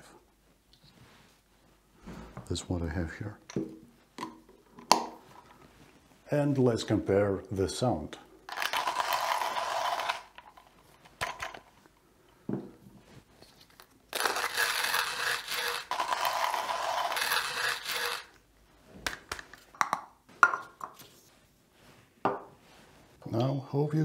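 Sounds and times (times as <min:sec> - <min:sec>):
hand coffee grinder crunching beans: 0:08.5 - 0:10.7, 0:14.1 - 0:18.4.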